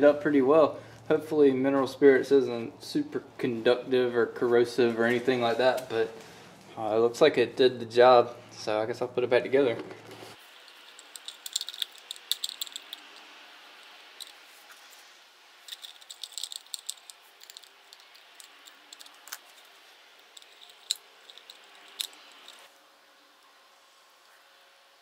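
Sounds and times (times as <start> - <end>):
light clicks and rattles: 10.6 - 13.2, 15.7 - 22.7.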